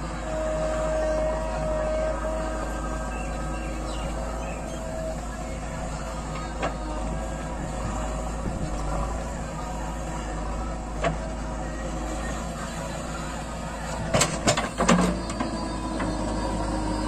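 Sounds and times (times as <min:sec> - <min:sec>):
diesel engine running: 0:00.0 - 0:17.0.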